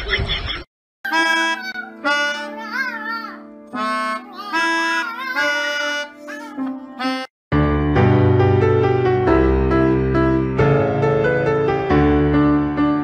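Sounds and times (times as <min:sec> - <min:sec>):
melodica held notes: 0:01.1 - 0:03.0, 0:03.7 - 0:07.3.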